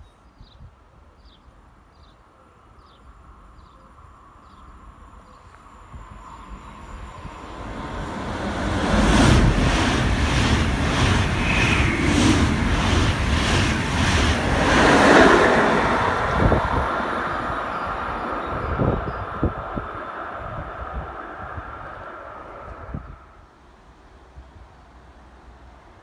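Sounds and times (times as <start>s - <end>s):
train passing at speed: 3.2s - 26.0s
rush of air: 6.7s - 23.5s.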